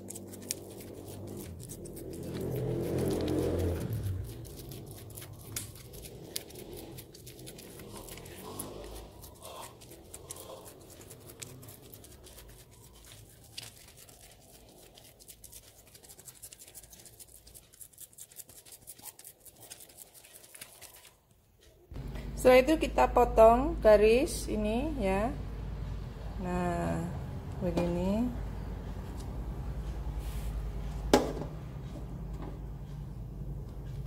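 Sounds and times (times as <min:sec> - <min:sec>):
dough scraper scratching: 0:00.0 - 0:21.1.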